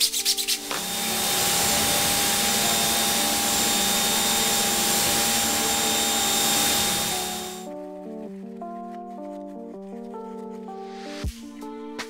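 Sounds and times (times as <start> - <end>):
motor and pump hum: 0.6 - 7.7.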